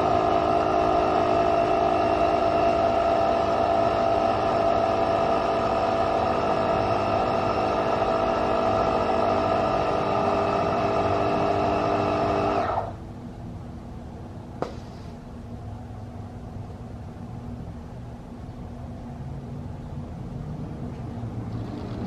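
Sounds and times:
air compressor droning: 0.0s - 13.2s.

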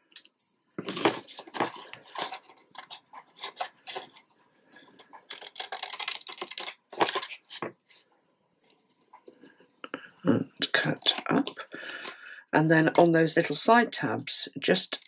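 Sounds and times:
paper album rustling and sliding: 0.8s - 4.2s.

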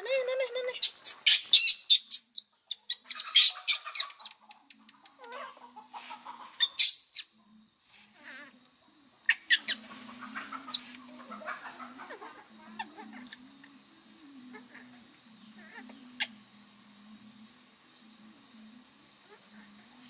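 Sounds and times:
baby monkey squealing: 0.0s - 4.3s, 9.3s - 9.8s.

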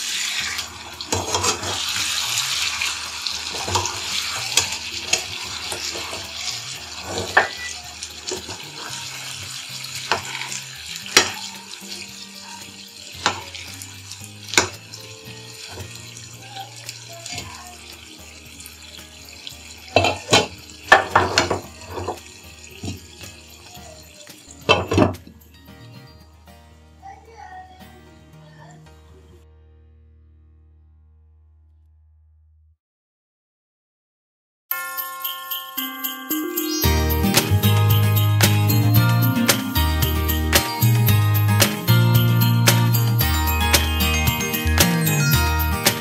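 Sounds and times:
spoon scraping a pan: 0.0s - 14.9s, 18.6s - 23.7s
curry sizzling and bubbling: 0.0s - 26.0s, 36.7s - 46.0s.

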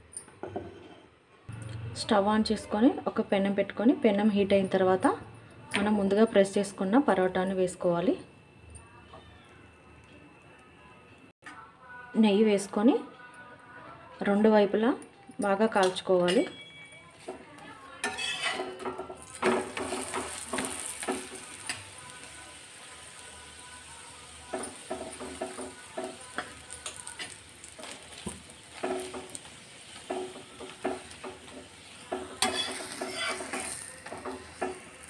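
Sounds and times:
metal spatula scraping pan: 18.0s - 18.8s, 32.0s - 34.9s
flatbread sizzling on hot pan: 18.0s - 35.0s.

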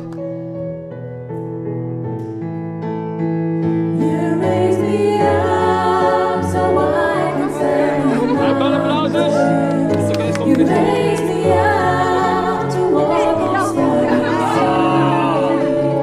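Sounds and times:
slow piano notes: 0.0s - 16.0s
person singing: 4.0s - 16.0s.

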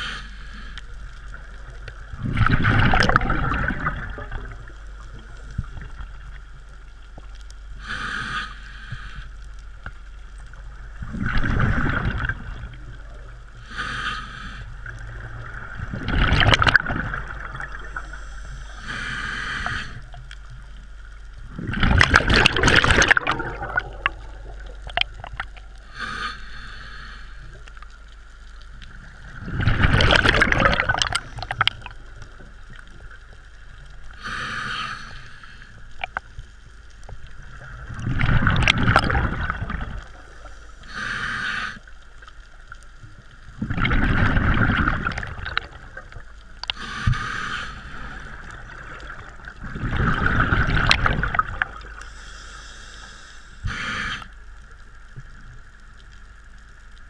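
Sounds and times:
exhaust bubbling underwater: 1.4s - 6.8s, 10.7s - 13.5s, 14.8s - 18.1s, 21.4s - 26.0s, 29.1s - 32.4s, 37.4s - 40.4s, 43.5s - 47.0s, 48.2s - 52.0s
regulator inhalation hiss: 7.8s - 9.3s, 13.7s - 14.8s, 18.0s - 20.2s, 25.8s - 27.6s, 34.2s - 35.9s, 40.2s - 41.9s, 46.7s - 48.4s, 52.0s - 54.4s.

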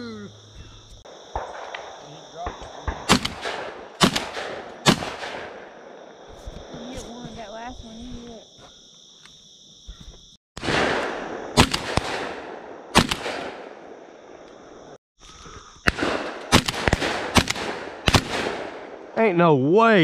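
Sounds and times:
shotgun shots: 1.2s - 5.8s, 10.6s - 14.0s, 15.8s - 19.1s.

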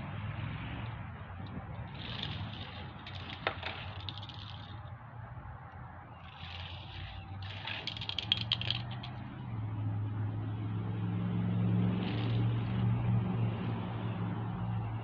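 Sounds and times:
passing motor vehicle hum: 0.0s - 15.0s
toy car rattling on track: 1.4s - 4.9s, 6.2s - 9.3s, 11.9s - 12.8s.

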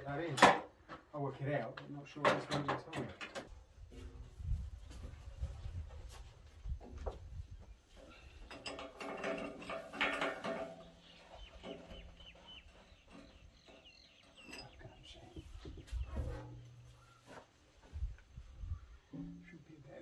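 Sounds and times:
metal parts clanking and rattling: 8.1s - 12.1s.

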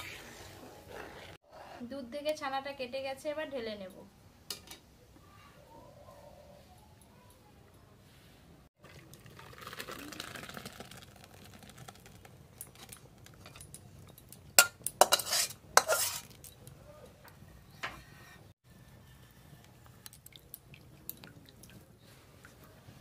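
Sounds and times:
milk pouring with a hiss: 8.9s - 12.2s
metal spatula scraping a wok: 14.6s - 16.5s.

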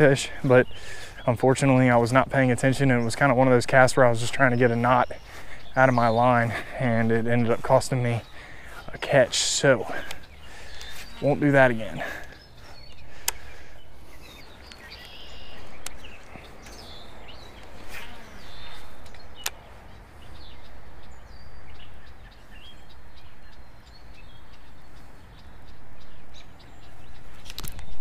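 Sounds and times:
faint bird chirps: 9.8s - 28.0s
sharp click: 19.0s - 19.6s, 27.4s - 28.0s.

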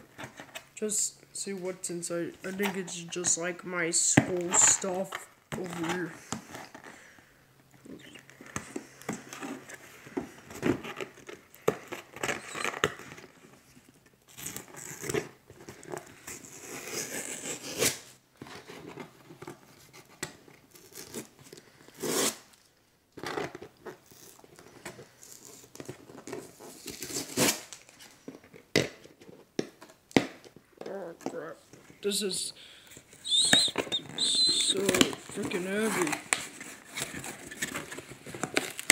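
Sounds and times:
tape tearing: 7.9s - 13.3s, 14.3s - 22.6s, 23.2s - 28.2s, 33.1s - 38.9s
packing tape peeling off cardboard: 14.3s - 19.0s, 19.6s - 22.6s, 23.2s - 24.4s, 25.1s - 28.1s
scratching and tapping on box: 33.1s - 38.7s.

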